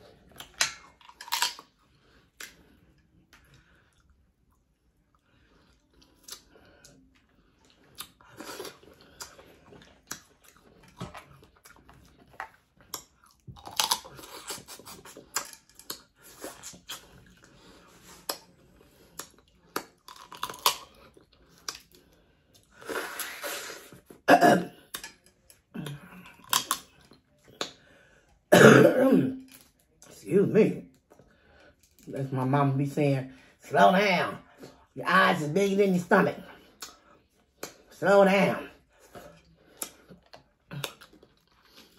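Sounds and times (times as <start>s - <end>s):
chewing: 0.0s - 28.1s, 38.8s - 41.9s
crab shell crunching: 0.3s - 2.6s, 12.8s - 17.1s, 19.2s - 21.9s
person coughing: 24.3s - 24.8s, 28.5s - 29.4s.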